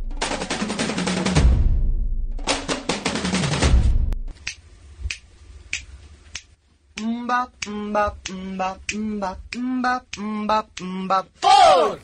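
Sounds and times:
finger snaps: 4.4s - 10.9s
person singing on one low note: 7.0s - 12.0s.

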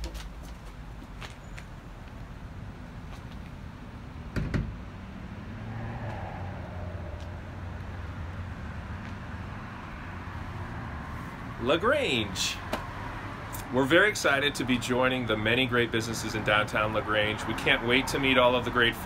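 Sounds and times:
car engines running: 1.8s - 19.0s
thump: 4.4s - 4.8s.

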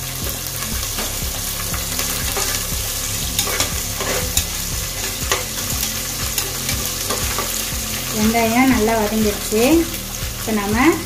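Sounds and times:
onions sizzling in hot oil: 0.0s - 11.0s
metal spatula scraping a pot: 0.8s - 8.0s.

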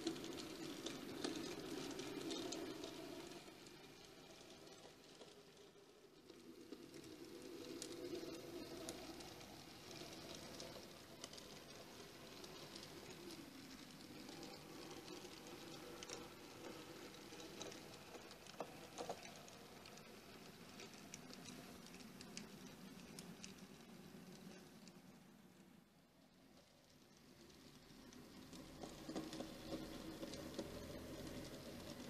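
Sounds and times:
model train wheels rattling: 0.0s - 25.8s, 26.4s - 32.0s.

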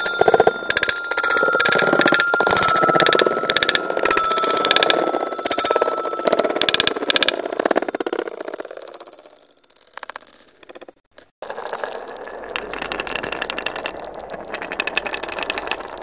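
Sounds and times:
marbles rattling on wooden track: 0.0s - 16.0s.

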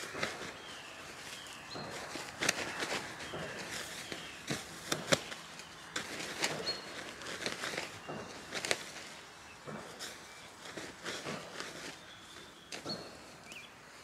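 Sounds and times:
nylon fabric rustling and flapping: 0.0s - 9.2s.

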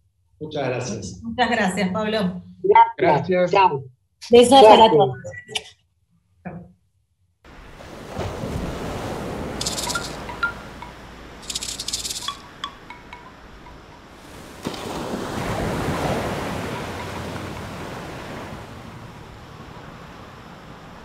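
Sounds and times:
shimmering chime-like rattles: 9.6s - 14.2s
small pings: 9.6s - 14.5s, 16.1s - 18.2s.

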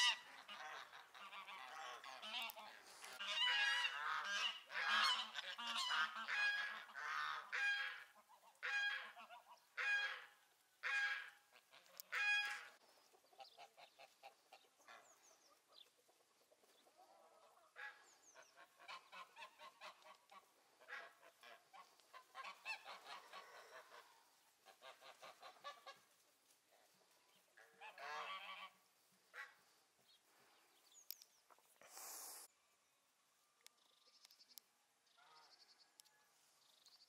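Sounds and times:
geese honking: 0.0s - 12.8s, 17.4s - 27.0s, 27.6s - 29.7s
geese chattering: 0.0s - 15.2s, 16.8s - 30.4s.

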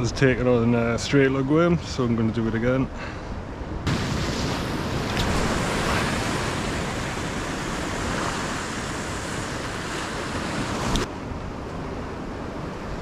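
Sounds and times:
wind blowing across microphone: 0.0s - 13.0s
surf breaking on rocks: 3.8s - 11.1s.

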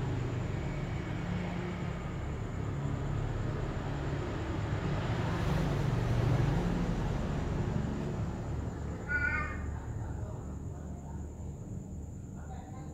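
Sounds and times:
low rumble and hiss: 0.0s - 12.9s
harsh animal call: 9.0s - 9.8s.

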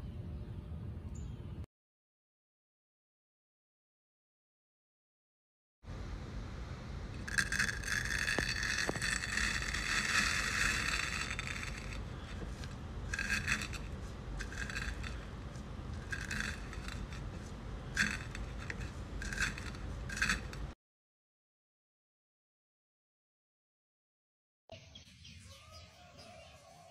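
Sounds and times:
eggs crackling as they burst: 7.2s - 20.7s
masher crunching: 7.2s - 20.7s.

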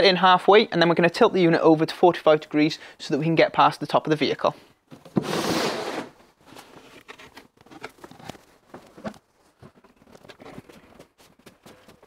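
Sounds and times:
shuffling footsteps: 8.6s - 12.0s.

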